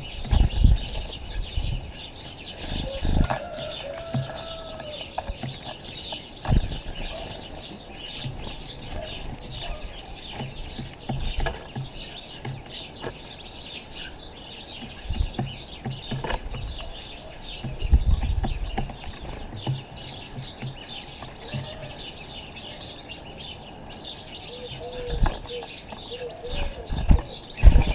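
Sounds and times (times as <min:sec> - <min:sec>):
small birds chirping: 0:00.0 - 0:27.9
dull low thumps: 0:08.0 - 0:13.2, 0:14.8 - 0:21.0.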